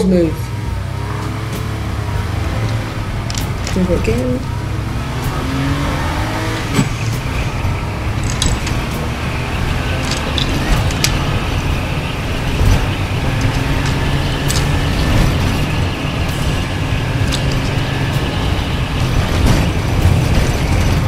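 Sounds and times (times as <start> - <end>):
steady low rumble: 0.0 - 21.0
plastic steering clicks: 8.2 - 9.0, 9.9 - 11.5.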